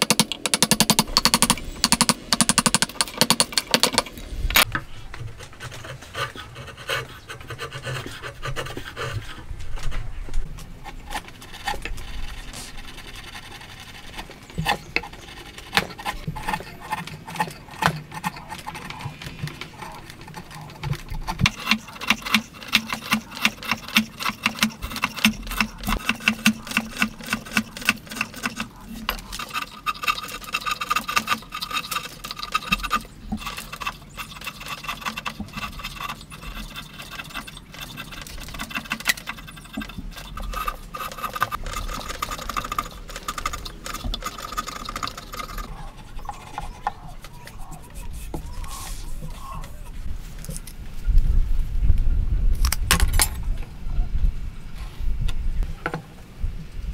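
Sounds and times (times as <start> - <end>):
chisel scraping wood: 5.3 - 9.5, 10.8 - 50.1.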